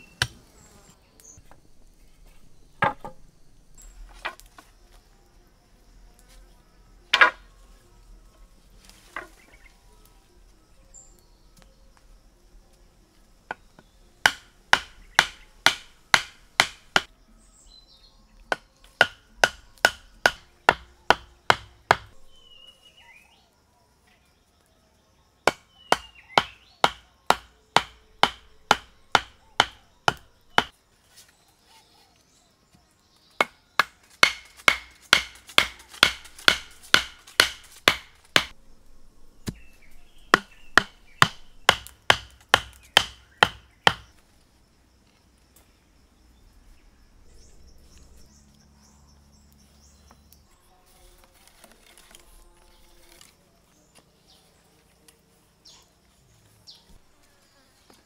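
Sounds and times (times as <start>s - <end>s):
faint bird chirps: 4.7s - 12.6s, 22.2s - 33.8s, 38.6s - 41.7s, 45.7s - 51.2s, 55.6s - 58.0s
mallet pounding wooden stakes: 14.2s - 17.1s, 18.5s - 22.2s, 25.5s - 30.7s, 33.4s - 38.6s, 40.3s - 44.2s.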